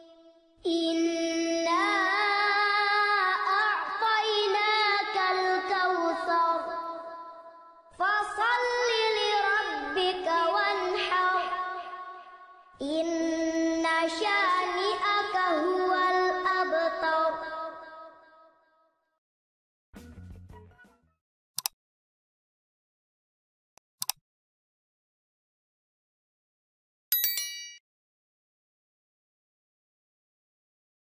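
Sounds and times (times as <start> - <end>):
child chanting recitation: 0.0 - 18.2.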